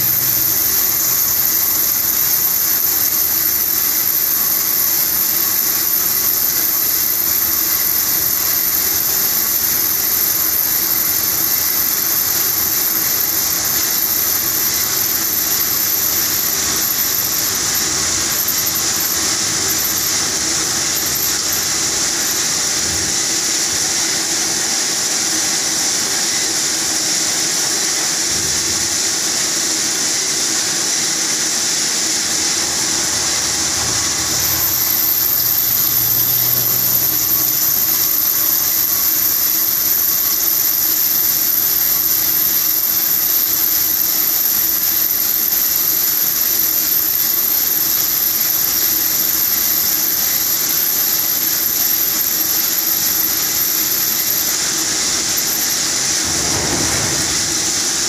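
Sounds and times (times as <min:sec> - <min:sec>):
coolant hissing and splashing: 0:00.0 - 0:58.0
high-pitched whine: 0:00.0 - 0:58.0
machine spindle running: 0:00.0 - 0:58.0.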